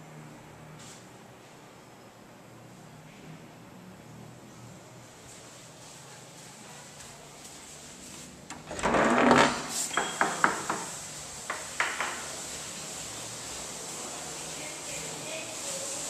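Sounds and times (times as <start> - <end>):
wooden door scraping: 8.5 - 12.2.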